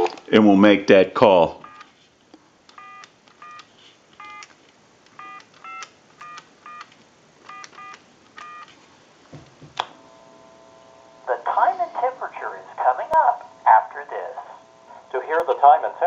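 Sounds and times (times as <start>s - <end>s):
telephone clicks: 2.7s - 8.7s
steady telephone line tone: 2.8s - 3.6s, 9.9s - 16.0s
touch-tone dialing beeps: 2.8s - 3.6s, 4.2s - 4.5s, 5.2s - 6.9s, 7.5s - 8.7s.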